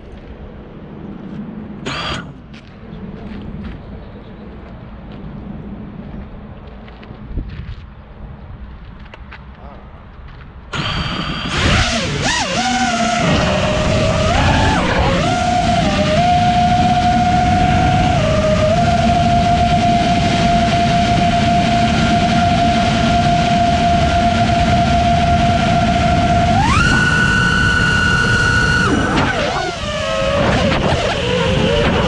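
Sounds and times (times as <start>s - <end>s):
propeller and wind rush: 0.0s - 32.0s
drone motors whining: 10.7s - 32.0s.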